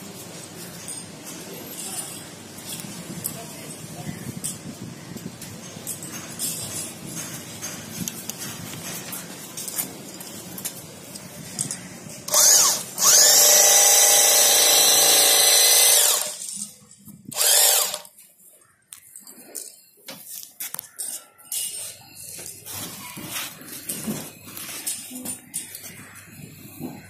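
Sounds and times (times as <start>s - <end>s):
bag sewing machine stitching: 12.3s - 16.6s.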